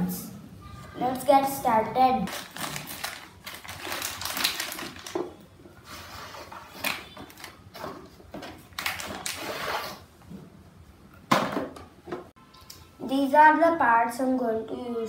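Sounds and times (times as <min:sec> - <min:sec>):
cardboard and plastic rustling: 0:02.3 - 0:10.0.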